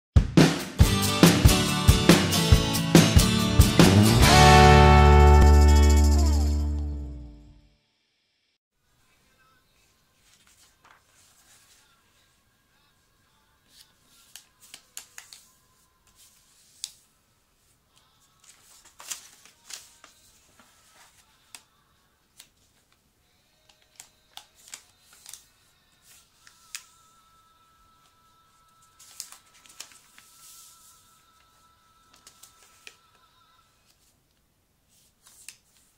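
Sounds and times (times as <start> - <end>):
paper rustling and crackling: 10.2 - 12.2, 13.7 - 17.0, 18.3 - 21.7, 23.7 - 27.1, 28.8 - 33.0, 34.9 - 35.9.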